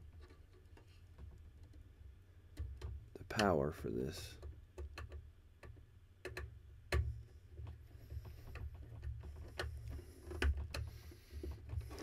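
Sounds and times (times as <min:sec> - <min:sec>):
screwdriver clicks and taps: 0:04.4 - 0:07.8.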